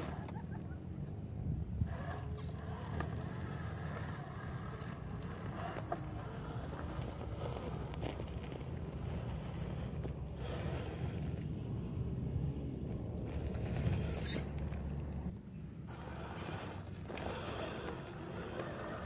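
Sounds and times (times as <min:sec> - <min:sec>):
toy car motor and gears whining: 0:01.8 - 0:11.8, 0:13.2 - 0:19.0
tyres clicking on soil and stones: 0:01.9 - 0:11.6, 0:12.8 - 0:15.3.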